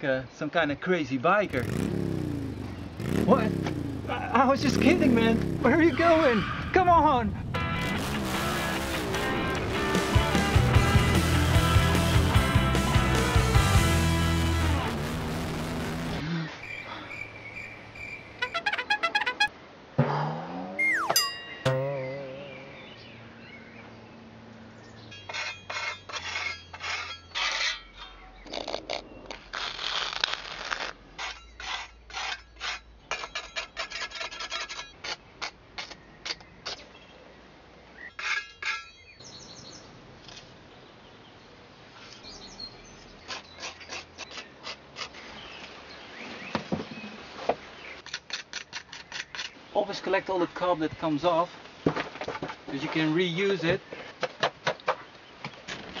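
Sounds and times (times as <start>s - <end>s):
metal scraper shaving clay plaster: 25.3s - 28.1s, 29.6s - 36.0s, 43.3s - 45.2s.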